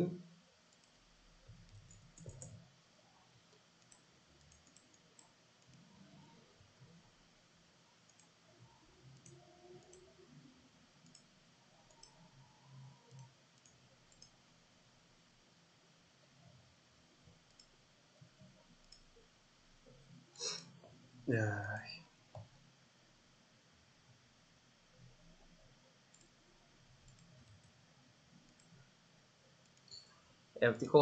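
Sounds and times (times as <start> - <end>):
computer mouse clicks: 0.7 - 1.0, 1.6 - 2.6, 3.5 - 5.9, 8.1 - 8.4, 9.1 - 10.2, 11.0 - 14.4, 17.5 - 17.7, 18.8 - 19.1, 26.1 - 26.4, 27.0 - 27.8, 28.5 - 28.8, 29.6 - 30.2.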